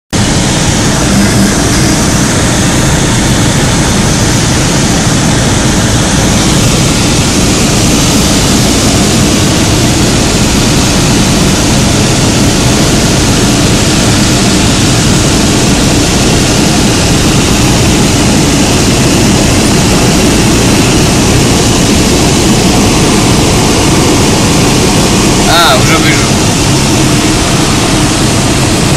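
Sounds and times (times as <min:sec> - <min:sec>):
propeller aircraft engine drone: 0:00.1 - 0:28.9
airflow noise: 0:00.2 - 0:28.9.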